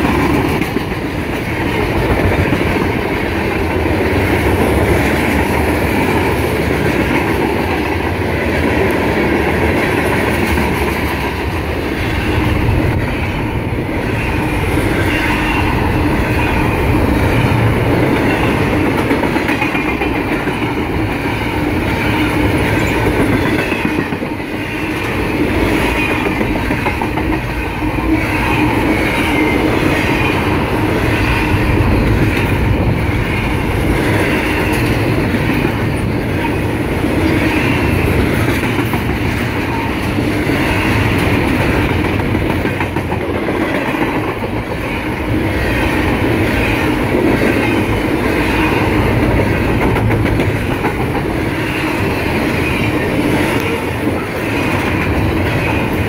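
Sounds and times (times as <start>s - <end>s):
freight train wheels on rails: 0.0s - 56.0s.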